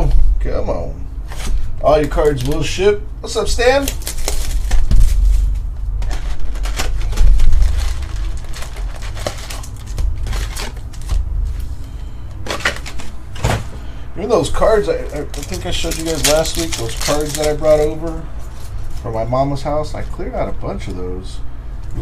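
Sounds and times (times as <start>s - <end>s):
foil packs handled: 1.2s - 20.3s
plastic shrink wrap crinkling: 1.3s - 13.6s, 14.7s - 20.2s
heavy bumps: 4.8s - 13.8s.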